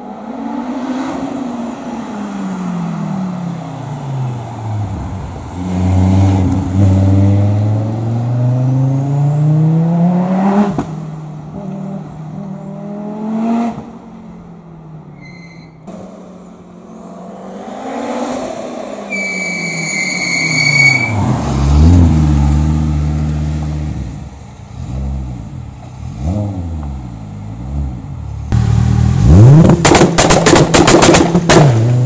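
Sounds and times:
high steady squeal: 0:19.1 - 0:21.2
car engine accelerating: 0:21.1 - 0:32.0.

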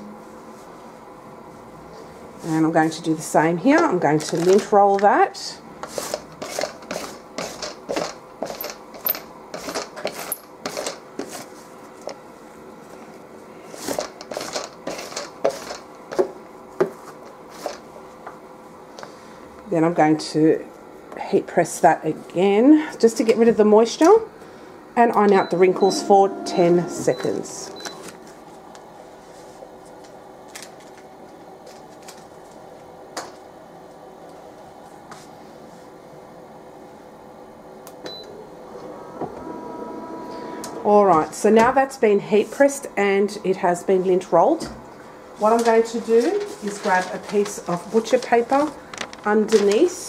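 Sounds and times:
heat press humming: 0:24.3 - 0:29.1, 0:37.6 - 0:42.6.

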